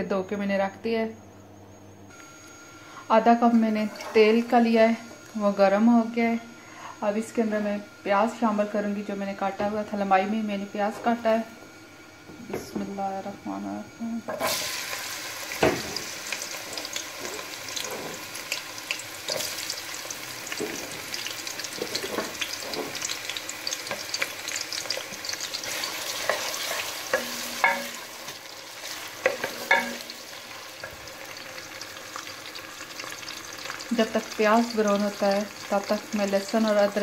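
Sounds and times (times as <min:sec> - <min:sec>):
onions sizzling in hot oil: 0:14.0 - 0:37.0.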